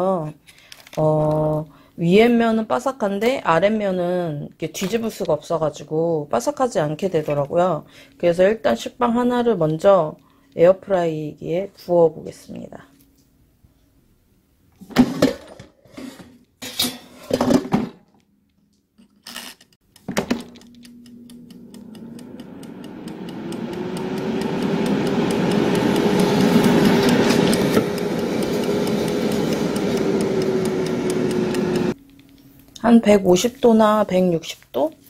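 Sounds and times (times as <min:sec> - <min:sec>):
clockwork timer ticking: 0:19.8 - 0:32.0
air fryer fan motor humming: 0:19.9 - 0:32.0.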